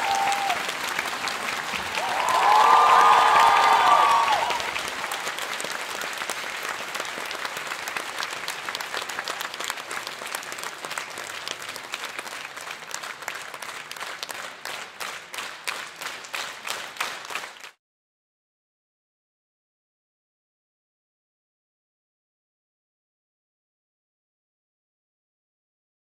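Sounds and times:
crowd applause: 0.0 - 17.8.

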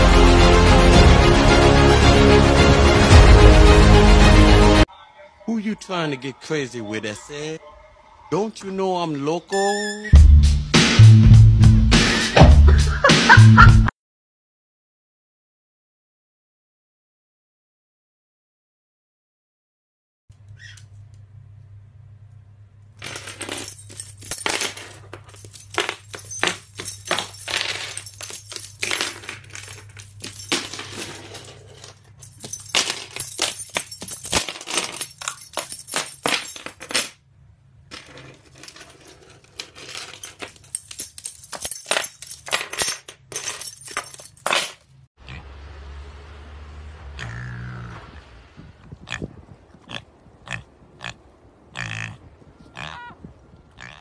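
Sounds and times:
keys clinking: 23.0 - 37.2, 37.9 - 45.0.

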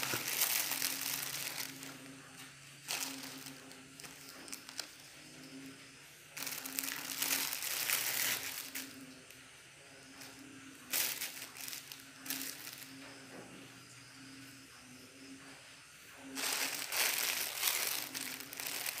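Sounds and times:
plastic bags crinkling: 0.0 - 5.0, 6.3 - 9.2, 10.2 - 13.0, 16.3 - 19.0.

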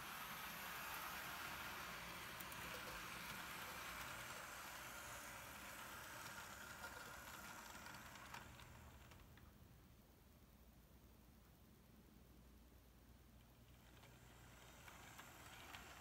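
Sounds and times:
model train running on track: 0.0 - 9.4, 13.6 - 16.0.

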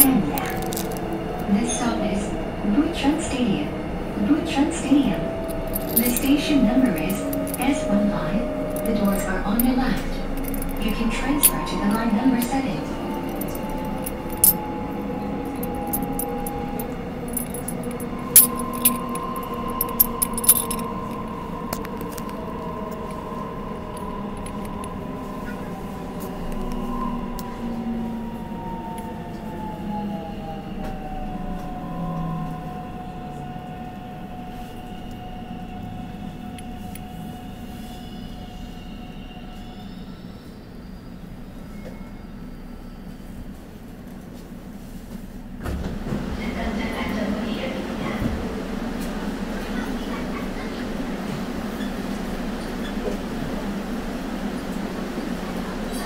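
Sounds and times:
electric train motors whining: 0.0 - 40.2.

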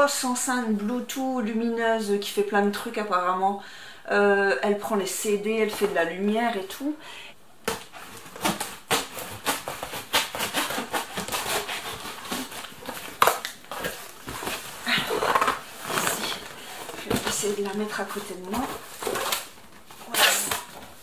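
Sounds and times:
cardboard box scraping and rustling: 7.9 - 21.0.

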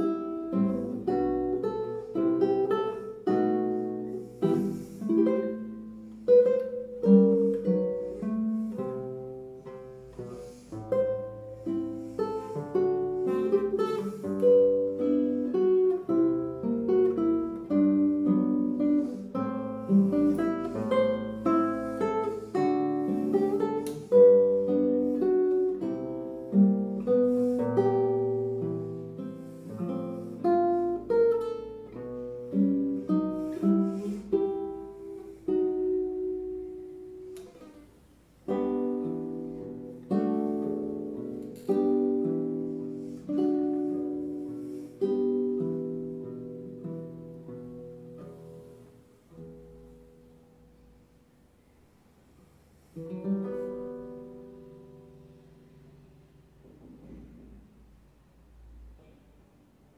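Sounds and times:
fingerpicked classical guitar: 0.0 - 59.9.

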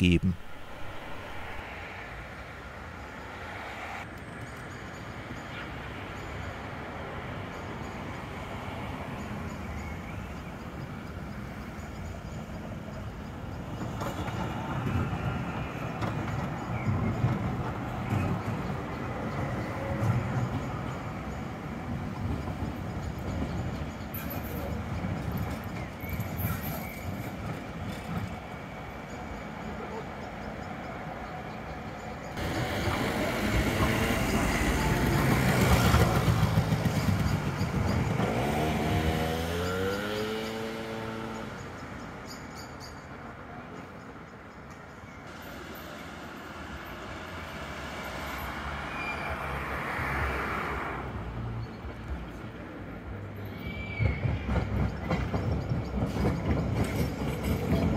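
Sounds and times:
tram rumbling past: 0.0 - 57.9
wheels clicking on rails: 10.6 - 48.9, 51.7 - 57.9.

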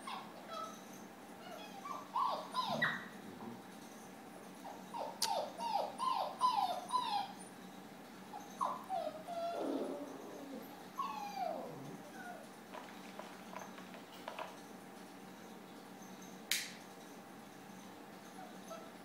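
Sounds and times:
puppies whining: 0.0 - 14.6, 17.8 - 19.0
sharp click: 16.5 - 16.8.

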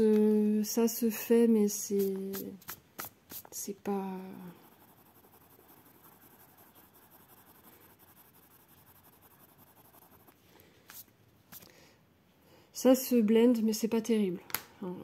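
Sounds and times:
pencil scratching on paper: 2.0 - 3.6, 4.3 - 11.6.

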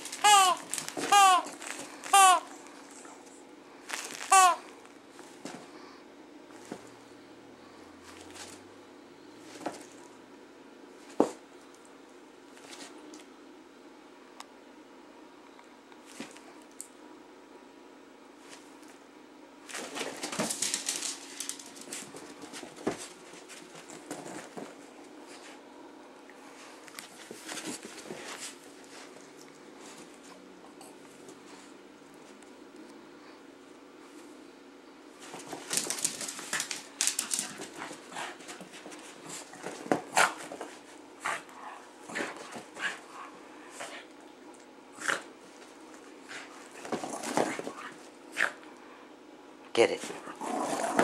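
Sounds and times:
dog scuffling with plush toy: 0.0 - 2.4, 3.9 - 4.6, 19.7 - 25.6, 27.0 - 30.4, 35.2 - 44.1, 45.0 - 48.6
dog paws and claws pattering: 19.7 - 25.5, 26.8 - 30.4, 35.2 - 43.2.

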